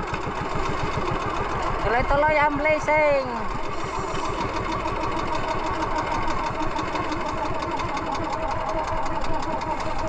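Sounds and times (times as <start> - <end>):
boat engine running: 0.0 - 10.0
water splashing along hull: 0.0 - 10.0.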